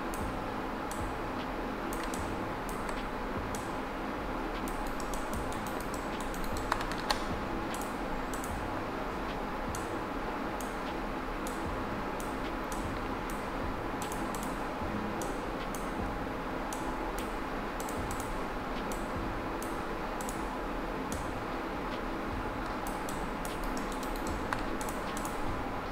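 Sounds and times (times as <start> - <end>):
steady background hiss: 0.0 - 25.9
computer mouse and keyboard clicks: 1.9 - 3.7, 4.6 - 8.5, 16.7 - 20.4, 22.6 - 25.4.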